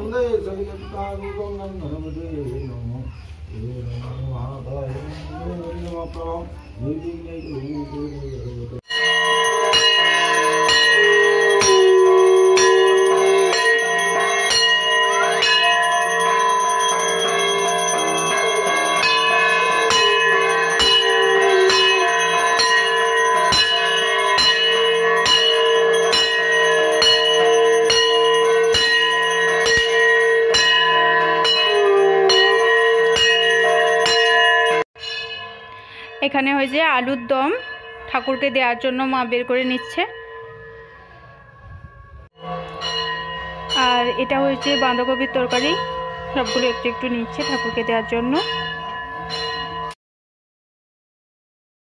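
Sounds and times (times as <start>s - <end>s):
bell ringing: 8.8s - 50.0s.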